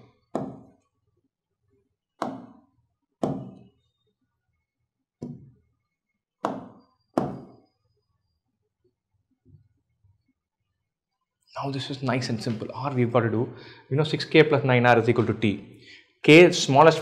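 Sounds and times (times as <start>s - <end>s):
marker knocking on whiteboard: 0.0s - 0.7s, 2.2s - 2.6s, 3.2s - 3.7s, 5.2s - 5.6s, 6.4s - 7.6s.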